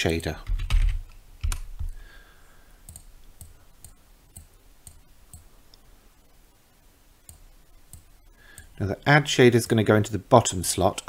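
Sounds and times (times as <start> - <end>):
computer mouse clicks: 2.8 - 5.5.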